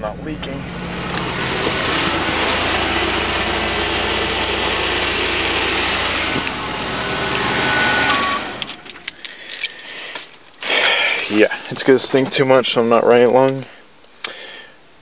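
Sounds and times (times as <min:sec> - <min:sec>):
car engine idling: 0:00.0 - 0:11.7.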